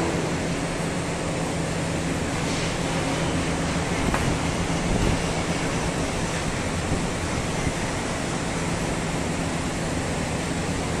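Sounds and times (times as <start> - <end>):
machine rushing hiss: 2.2 - 8.2.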